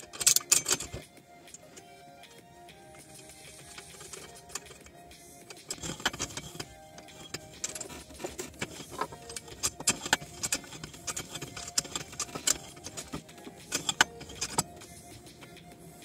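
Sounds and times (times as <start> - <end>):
metallic clicks and rattles: 0.0 - 2.0, 2.9 - 15.7.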